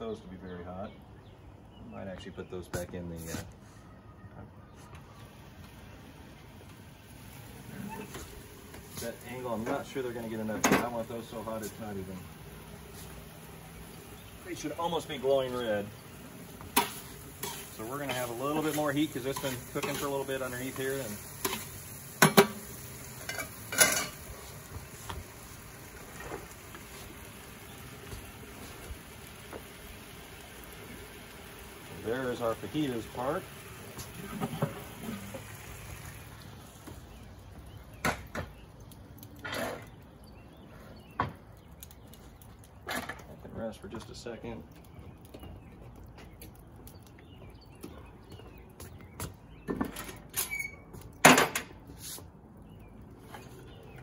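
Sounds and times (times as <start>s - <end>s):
food sizzling in a wok: 5.9s - 37.4s
utensils clattering against wok: 10.5s - 11.0s, 16.6s - 24.3s
cookware clattering: 23.2s - 24.2s.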